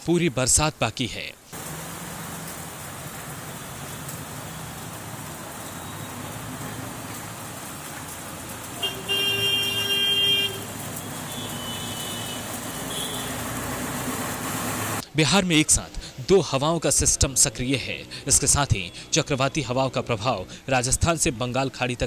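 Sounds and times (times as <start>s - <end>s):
street traffic noise: 1.5s - 22.0s
vehicle horn: 8.8s - 13.5s.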